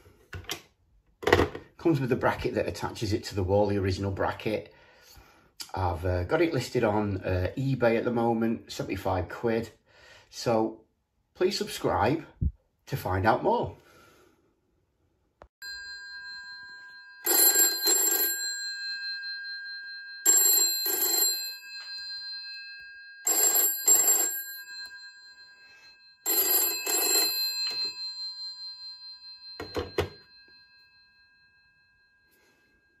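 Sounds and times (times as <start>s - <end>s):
telephone bell ringing: 15.6s - 33.0s.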